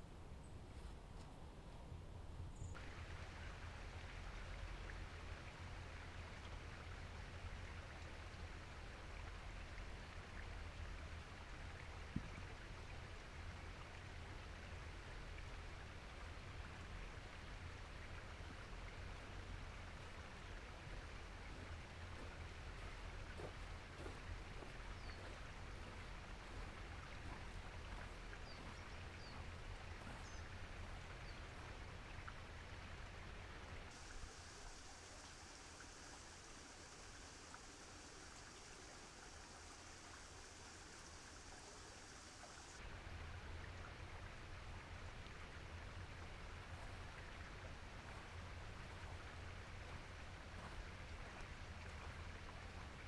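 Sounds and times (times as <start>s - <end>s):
steady high hiss: 14.7s - 53.0s.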